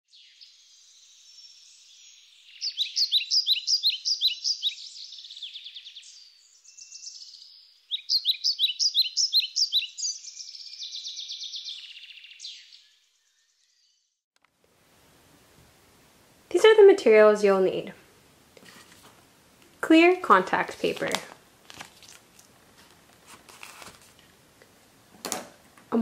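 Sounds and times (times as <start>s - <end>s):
songbird chirping: 0.1s - 14.2s.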